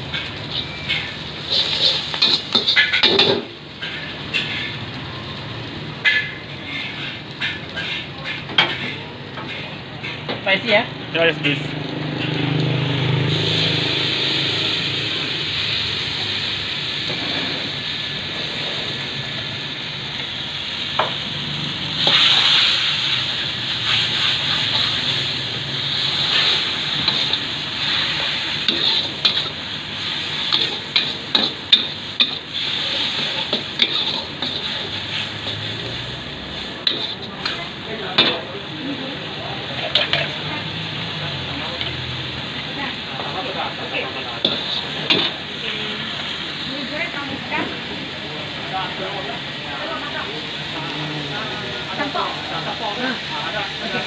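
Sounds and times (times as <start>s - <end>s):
spatula scraping and clanking on wok: 0.0s - 5.0s, 5.9s - 10.8s, 12.1s - 14.2s, 16.9s - 19.0s, 21.0s - 38.5s, 39.7s - 40.8s, 44.2s - 45.6s
noodles sizzling in a wok: 0.0s - 54.0s.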